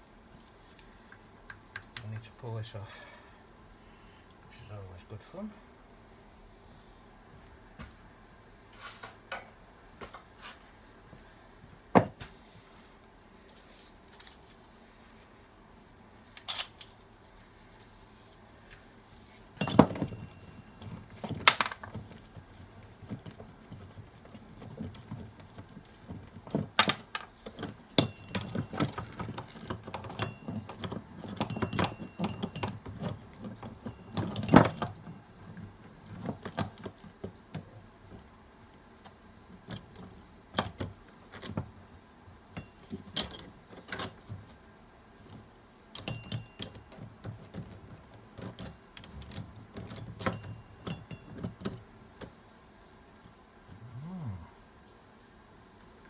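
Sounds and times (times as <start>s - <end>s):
metallic tool clinks and knocks: 19.6s - 22.1s, 27.2s - 35.2s, 46.0s - 47.0s, 49.0s - 51.8s.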